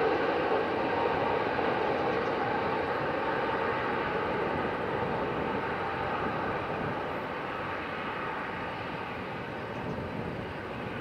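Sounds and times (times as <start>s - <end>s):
jet engine roar: 0.0s - 11.0s.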